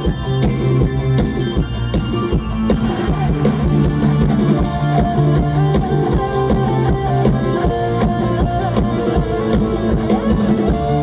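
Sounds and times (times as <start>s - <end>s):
bass: 0.0s - 11.0s
drum kit steady beat: 0.0s - 11.0s
guitar melody: 0.0s - 11.0s.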